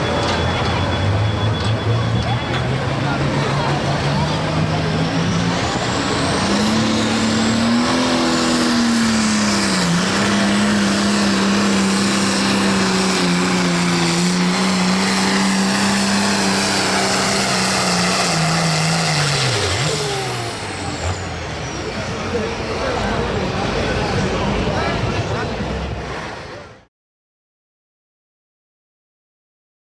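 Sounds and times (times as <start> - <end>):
tractor diesel engine at full throttle: 0.0 - 26.9.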